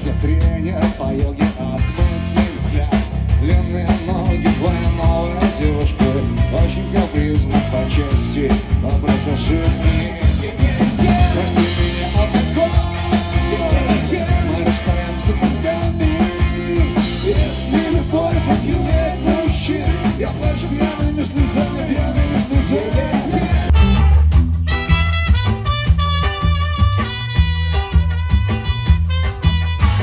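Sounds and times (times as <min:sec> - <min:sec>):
person singing: 0:00.0 - 0:23.8
drums: 0:00.0 - 0:30.0
electric bass: 0:00.0 - 0:30.0
trumpet holding notes: 0:22.0 - 0:30.0.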